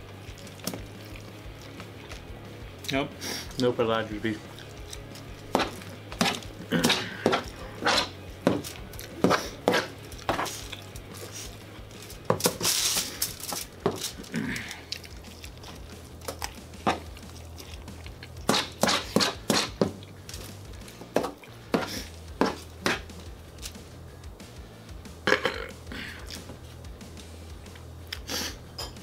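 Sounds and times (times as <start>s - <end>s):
metal spoon scraping on foil: 9.3s - 14.3s
foil crinkling: 10.4s - 19.1s.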